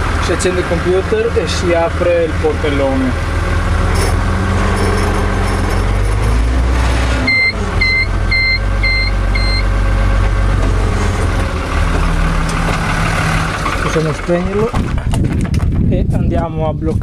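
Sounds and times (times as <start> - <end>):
tractor diesel engine running: 0.0 - 15.9
high electronic warning beeps: 7.3 - 9.7.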